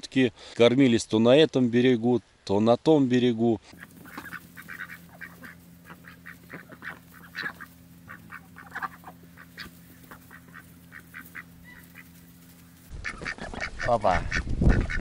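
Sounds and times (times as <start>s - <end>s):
ducks quacking: 3.7s - 15.0s
geese honking: 3.7s - 15.0s.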